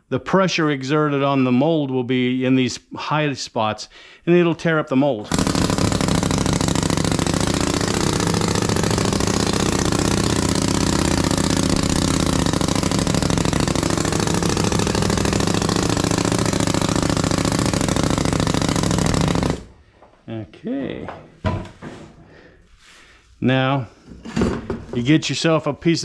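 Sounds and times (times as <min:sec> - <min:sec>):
pneumatic sand rammer hammering: 0:05.2 - 0:19.8.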